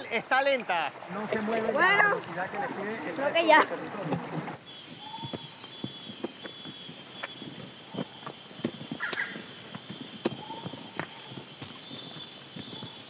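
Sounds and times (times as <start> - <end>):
forest insects droning: 0.0 - 13.0
footsteps on leaf litter: 4.6 - 13.0.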